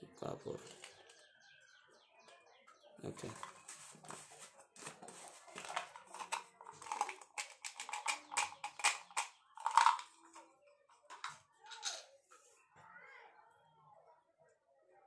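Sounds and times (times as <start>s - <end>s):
plastic jar cap clicking and scraping: 3.2s - 10.4s, 11.0s - 12.0s.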